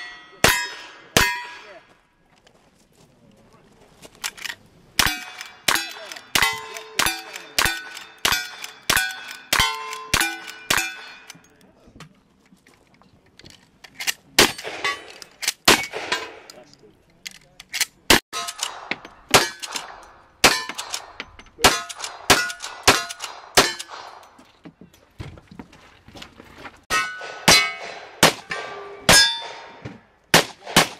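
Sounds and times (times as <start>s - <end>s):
steel target ringing: 0.0s - 1.7s, 5.0s - 11.3s, 26.9s - 29.8s
rifle shots: 14.4s - 16.5s, 18.1s - 24.2s, 27.2s - 30.9s.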